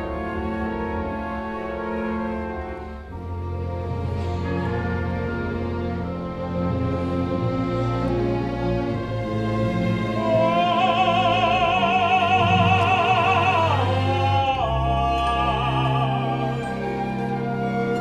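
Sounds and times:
symphony orchestra playing: 0:00.0 - 0:18.0
operatic tenor singing: 0:09.1 - 0:18.0.

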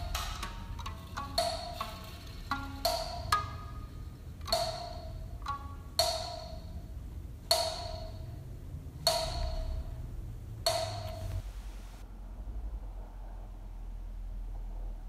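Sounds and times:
struck percussion notes: 0:00.0 - 0:12.0
low steady rumble: 0:00.0 - 0:15.0.

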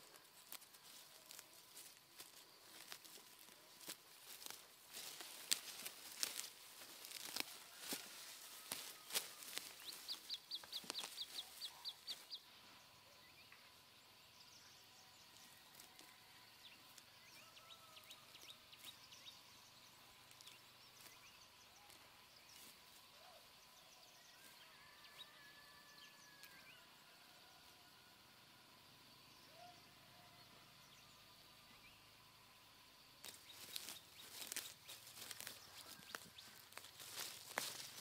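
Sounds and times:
weeds pulled from stony soil: 0:00.0 - 0:12.4, 0:21.8 - 0:23.0, 0:33.2 - 0:38.0
faint bird calls: 0:00.0 - 0:28.2, 0:29.1 - 0:32.2
faint high whine: 0:00.0 - 0:38.0.

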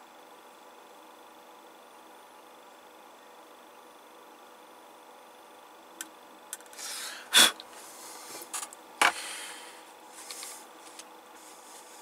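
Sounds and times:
soft hiss: 0:06.7 - 0:12.0.

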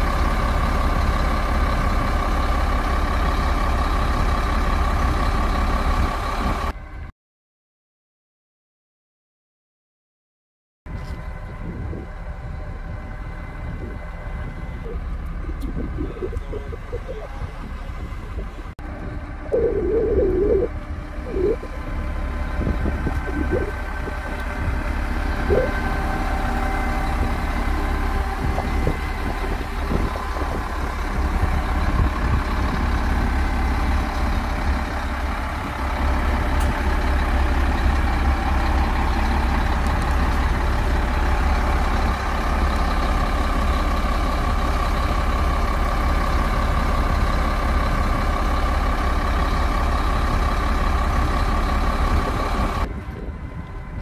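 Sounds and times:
heavy diesel engines rumbling: 0:00.0 - 0:07.1, 0:10.9 - 0:54.0
steady higher tone: 0:11.7 - 0:31.3.

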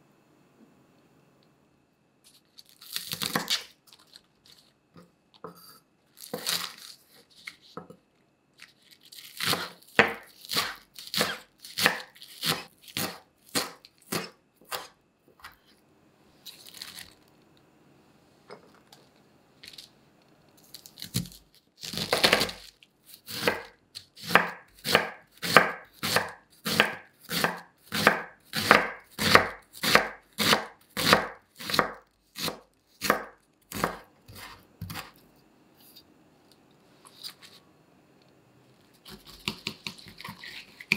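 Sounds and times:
knife crunching into cabbage: 0:06.2 - 0:07.6
knife shredding cabbage: 0:08.6 - 0:14.9, 0:20.7 - 0:35.2, 0:39.0 - 0:40.9
knife chopping on wooden board: 0:09.4 - 0:15.6, 0:23.3 - 0:35.1, 0:39.1 - 0:40.9.

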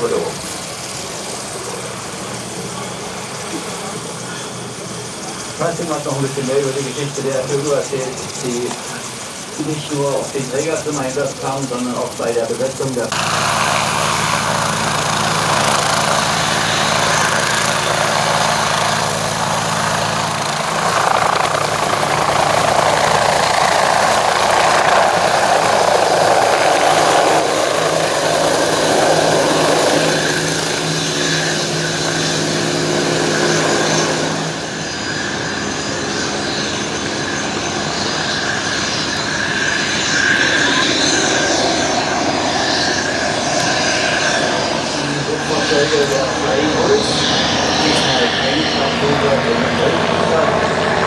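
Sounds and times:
helicopter rotor noise: 0:00.0 - 0:51.0
helicopter turbine whine: 0:00.0 - 0:51.0.

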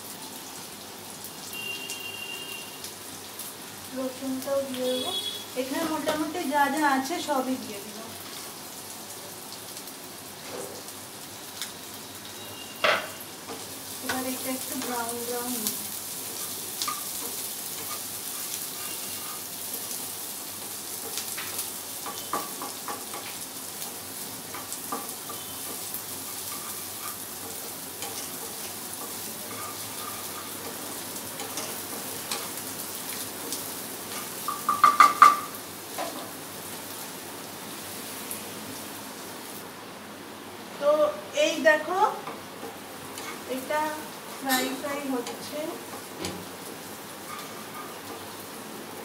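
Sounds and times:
vegetables sizzling in hot oil: 0:00.0 - 0:49.0
spatula scraping frying pan: 0:16.3 - 0:19.7, 0:24.5 - 0:32.6, 0:43.1 - 0:43.5.

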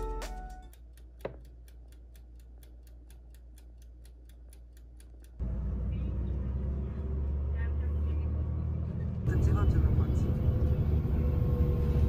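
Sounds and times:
mechanical timer ticking: 0:00.0 - 0:05.4.

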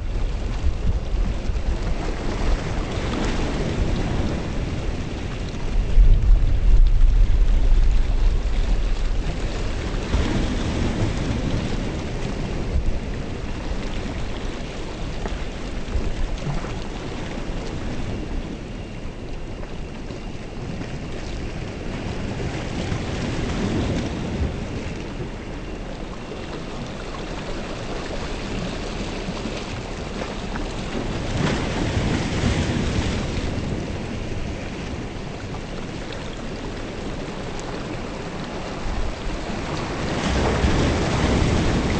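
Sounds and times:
steady rushing noise: 0:00.0 - 0:19.5
low thunder rumbles: 0:03.4 - 0:13.4.

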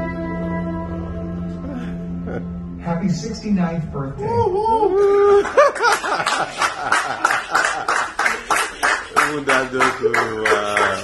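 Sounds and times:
hands clapping steadily: 0:05.5 - 0:11.0.

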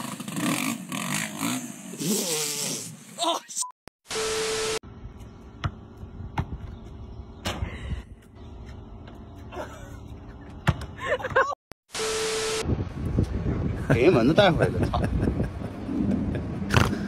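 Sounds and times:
basketball bouncing on asphalt: 0:05.2 - 0:07.0, 0:10.5 - 0:11.5.

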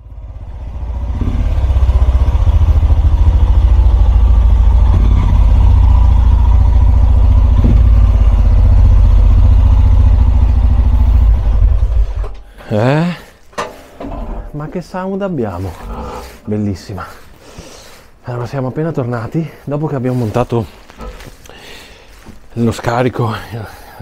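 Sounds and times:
motorcycle engine thumping exhaust: 0:00.0 - 0:12.6.

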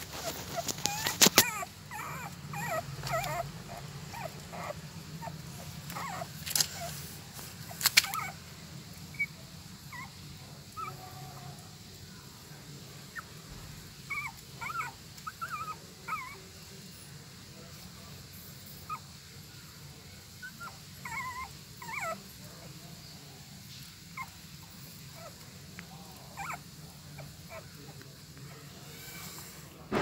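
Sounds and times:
puppies squeaking and whimpering: 0:00.0 - 0:08.4, 0:14.0 - 0:16.4, 0:20.4 - 0:22.3, 0:24.1 - 0:28.0.

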